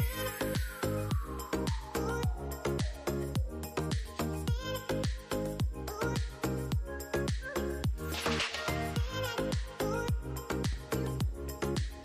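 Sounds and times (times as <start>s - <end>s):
electronic music with bass thuds: 0.0s - 12.0s.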